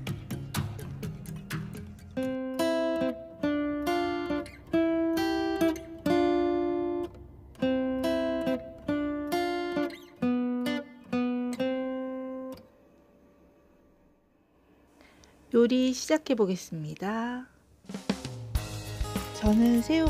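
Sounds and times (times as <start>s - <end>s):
acoustic guitar chords: 0.0s - 13.7s, 17.9s - 20.0s.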